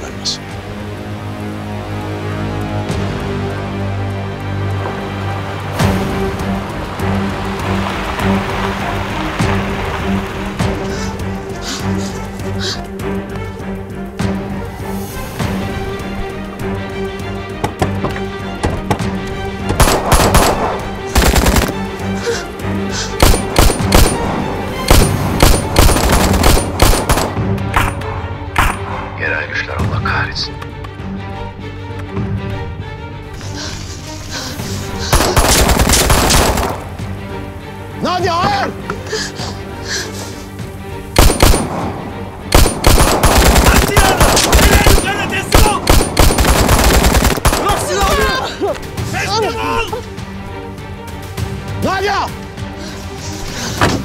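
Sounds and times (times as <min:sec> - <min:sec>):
tense music score: 0:00.0 - 0:54.0
pistol and rifle fire: 0:19.8 - 0:21.8, 0:24.9 - 0:27.3, 0:41.2 - 0:41.8, 0:42.5 - 0:47.6
rapid gunfire bursts: 0:19.8 - 0:21.8, 0:24.9 - 0:27.4, 0:35.1 - 0:36.7, 0:42.5 - 0:47.8.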